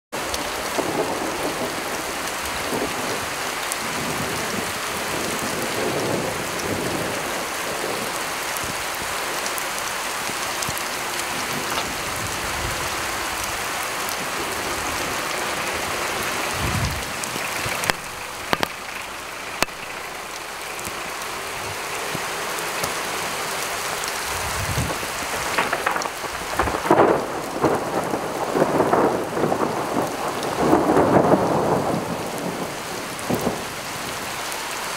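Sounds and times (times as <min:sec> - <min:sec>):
rain falling on wet pavement: 0:00.1 - 0:34.9
thunder rumbling: 0:00.3 - 0:34.4
sharp ticks: 0:17.8 - 0:19.0.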